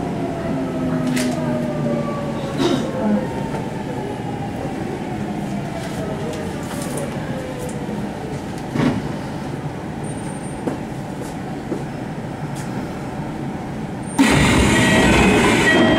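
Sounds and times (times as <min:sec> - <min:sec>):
low train rumble: 0:00.0 - 0:15.9
train inverter whine: 0:00.0 - 0:15.9
loud sudden sound: 0:14.2 - 0:15.9.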